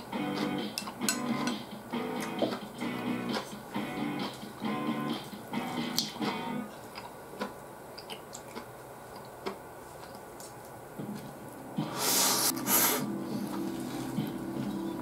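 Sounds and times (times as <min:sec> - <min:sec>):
chewing: 0:06.8 - 0:10.6
loud breathy hiss: 0:11.8 - 0:13.5.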